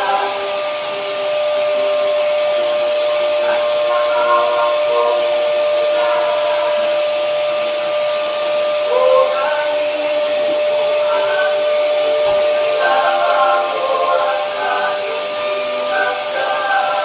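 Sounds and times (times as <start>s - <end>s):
paint sprayer turbine whine: 0.0s - 17.0s
airy spray hiss: 8.9s - 17.0s.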